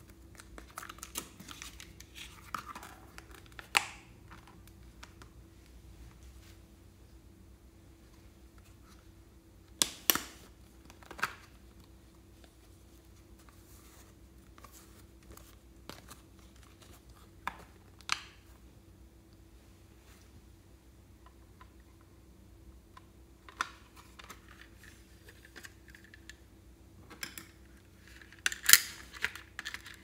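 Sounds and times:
clay rustling: 0:07.9 - 0:18.5.

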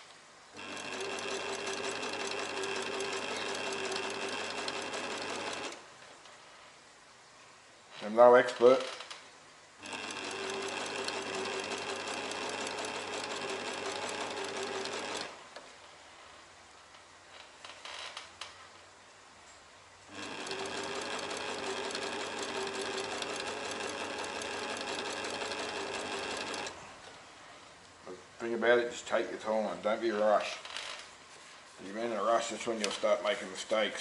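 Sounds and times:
sewing machine running: 0:00.6 - 0:05.8, 0:09.8 - 0:15.4, 0:20.1 - 0:26.8.

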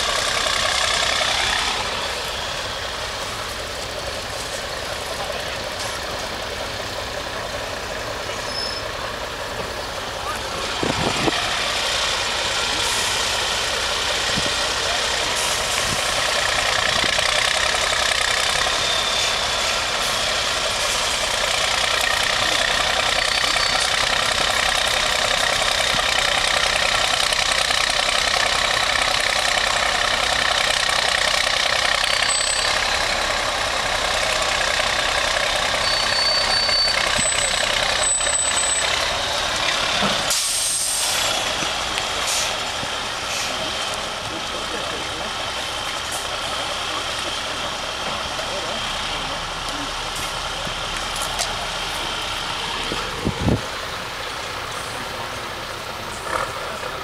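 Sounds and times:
truck diesel engine under load: 0:00.0 - 0:57.0
brief high tones: 0:35.8 - 0:38.9.

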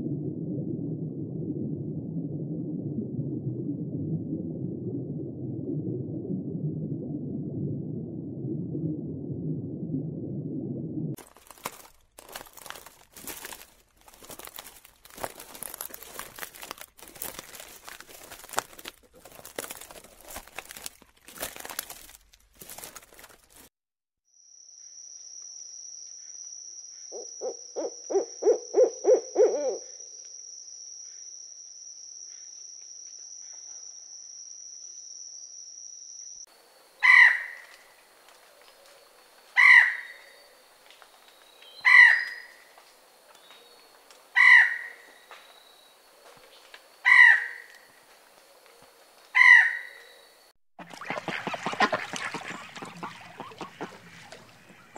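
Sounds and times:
irregular clicks and crackles: 0:11.2 - 0:23.7
owl hooting: 0:27.1 - 0:30.1, 0:37.0 - 0:37.6
peacock calling: 0:27.4 - 0:29.9, 0:37.0 - 0:37.6, 0:50.9 - 0:54.9.

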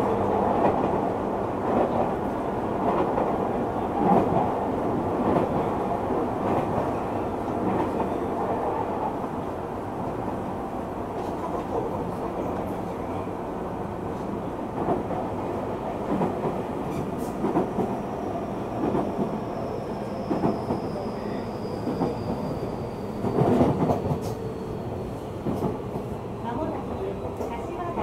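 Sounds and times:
train wheels rumbling on rail: 0:00.0 - 0:28.0
rail joint clacks: 0:23.2 - 0:24.5.

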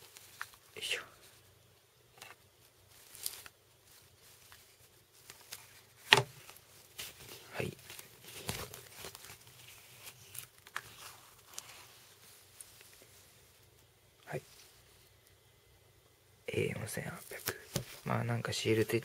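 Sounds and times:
foam sheet rustling and crinkling: 0:02.2 - 0:13.7.

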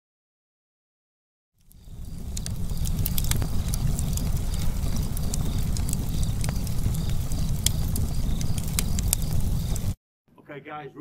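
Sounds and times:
fire pops and snaps: 0:01.6 - 0:10.0
low rumble of flames: 0:01.6 - 0:10.0.

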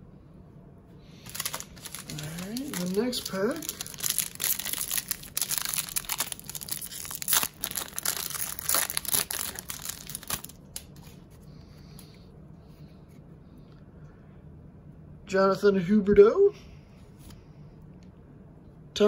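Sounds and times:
wrapper crinkling and tearing: 0:01.2 - 0:11.2.

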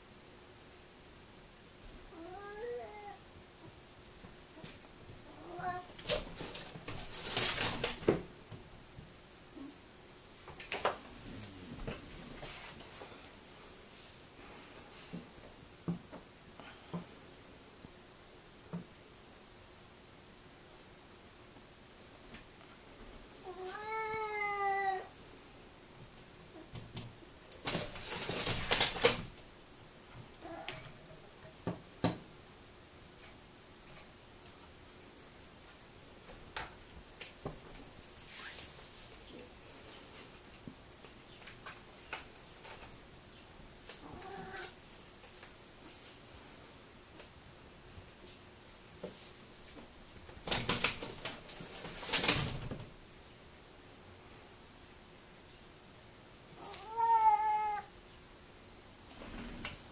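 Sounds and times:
cat meowing: 0:02.1 - 0:03.2, 0:05.3 - 0:06.0, 0:23.5 - 0:25.1, 0:44.0 - 0:44.7, 0:56.6 - 0:57.9
screen door rattling and knocking: 0:27.7 - 0:29.4.

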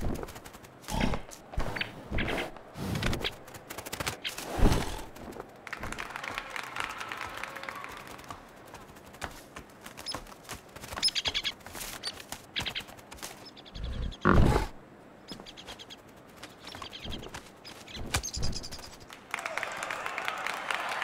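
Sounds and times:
small bird chirping: 0:10.9 - 0:14.6, 0:15.2 - 0:19.1.

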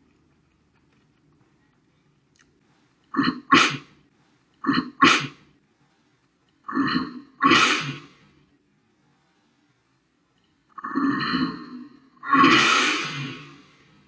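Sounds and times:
man choking and coughing: 0:03.1 - 0:03.9, 0:04.6 - 0:05.4, 0:06.7 - 0:08.0.

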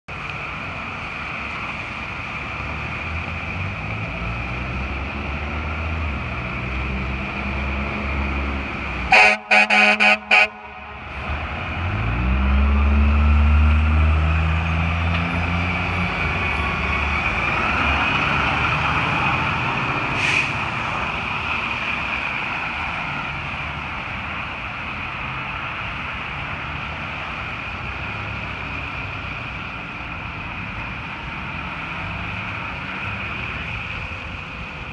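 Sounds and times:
truck diesel engine revving: 0:02.5 - 0:22.0
air horn blasts: 0:09.1 - 0:11.1.

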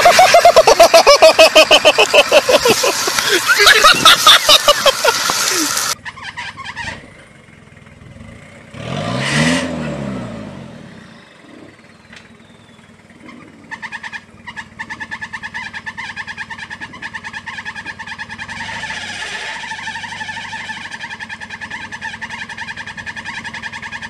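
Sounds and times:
loud noisy clatter: 0:00.0 - 0:06.0
engine revving: 0:00.0 - 0:12.4, 0:13.1 - 0:24.0.

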